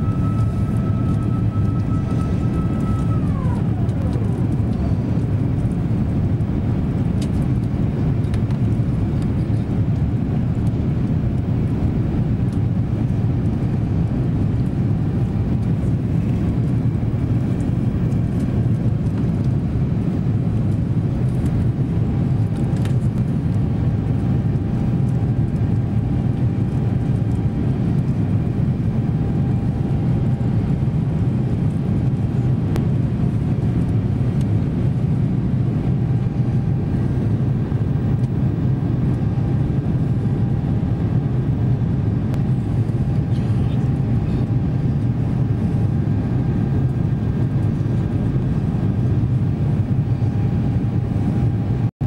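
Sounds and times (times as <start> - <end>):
high whine gliding down: 0.0 - 4.8
airplane cabin drone: 0.0 - 51.9.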